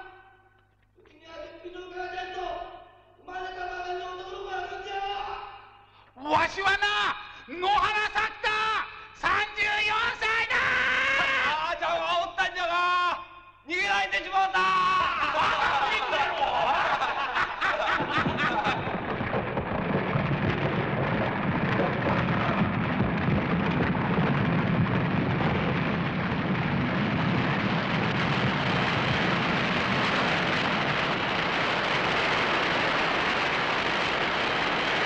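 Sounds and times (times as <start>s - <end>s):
rumble of falling rock: 17.7s - 35.0s
hissing rush of rubble: 18.0s - 35.0s.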